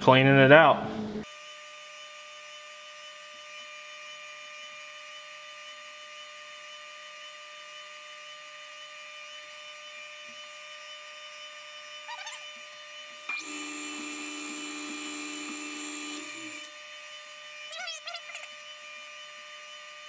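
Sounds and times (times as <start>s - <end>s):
drill bit cutting metal tone: 8.3s - 19.5s
milling machine spindle humming: 9.4s - 19.7s.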